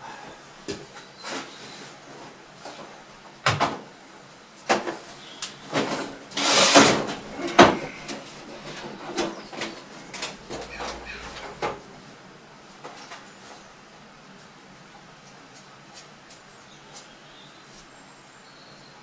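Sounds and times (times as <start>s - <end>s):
rattling scrape of metal: 5.7s - 12.0s.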